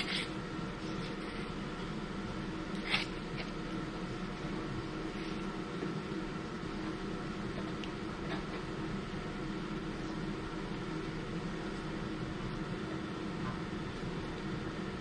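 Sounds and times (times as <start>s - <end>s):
low mechanical hum with hiss: 0.0s - 15.0s.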